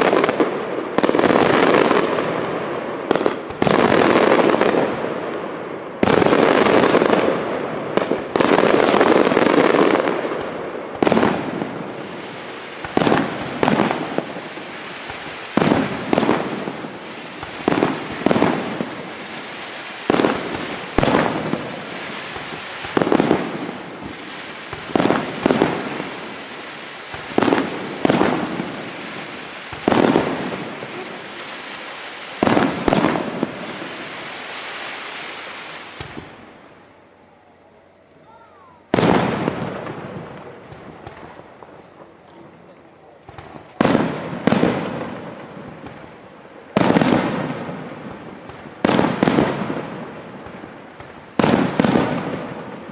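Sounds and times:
firework shells bursting: 8.0s - 36.5s.

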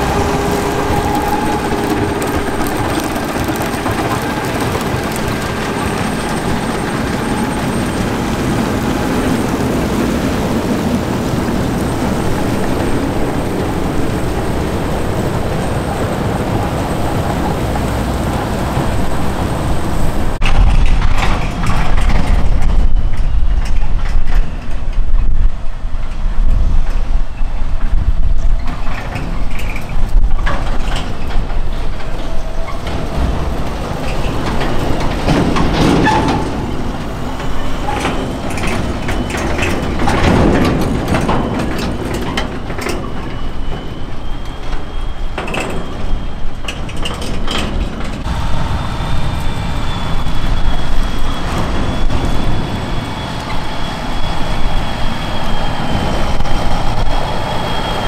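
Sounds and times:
steady high whine: 0.0s - 22.1s, 48.2s - 58.0s
tractor diesel engine running: 0.0s - 23.1s, 28.8s - 58.0s
trailer clattering and rattling: 0.0s - 58.0s.

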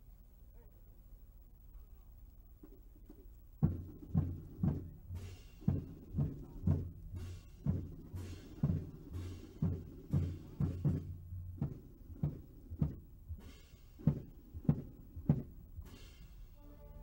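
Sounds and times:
deep drum beats: 2.6s - 16.6s
military band held notes: 3.6s - 17.0s.

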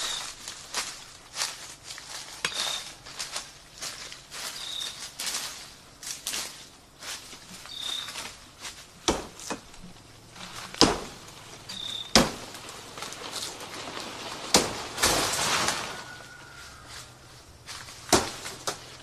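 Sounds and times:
rustling in undergrowth: 0.0s - 19.0s
sharp woody knocks: 12.1s - 12.4s.

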